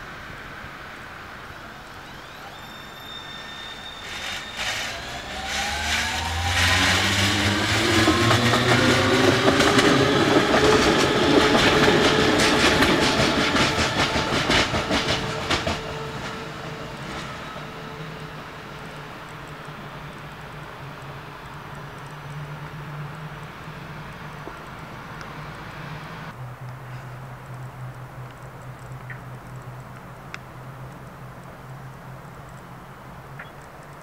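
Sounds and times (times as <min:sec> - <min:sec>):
electric traction motors whining: 0:01.7 - 0:19.9
wheels clicking on rails: 0:01.8 - 0:25.7.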